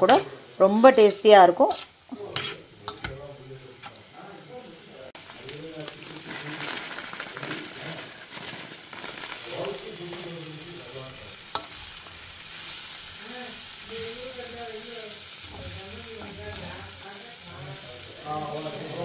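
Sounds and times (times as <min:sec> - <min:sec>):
metal spoon scraping a pan: 0:00.0 - 0:04.1
beans sizzling in a pan: 0:00.0 - 0:19.0.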